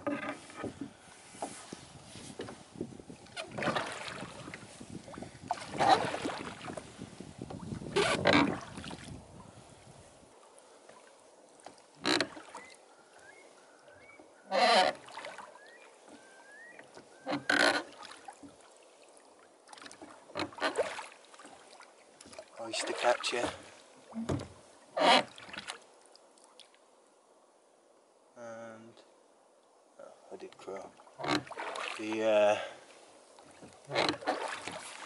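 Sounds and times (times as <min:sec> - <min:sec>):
oars splashing through water: 0:00.0 - 0:26.8, 0:30.5 - 0:35.0
bird whistles: 0:12.6 - 0:14.2, 0:15.6 - 0:17.3.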